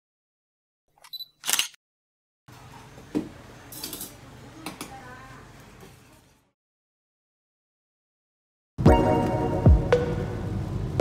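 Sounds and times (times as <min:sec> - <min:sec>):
restaurant room hum: 0:02.5 - 0:06.6, 0:08.8 - 0:11.0.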